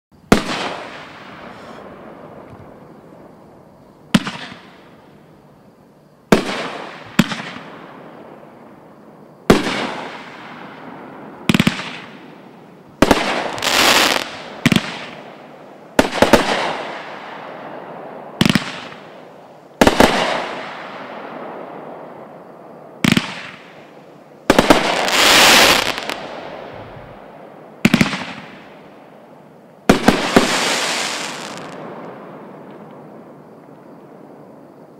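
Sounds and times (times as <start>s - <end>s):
firework bangs: 0.3s - 2.6s, 4.1s - 4.9s, 6.3s - 8.1s, 9.4s - 12.4s, 13.0s - 19.2s, 19.8s - 22.3s, 23.0s - 23.8s, 24.5s - 28.9s, 29.8s - 33.2s.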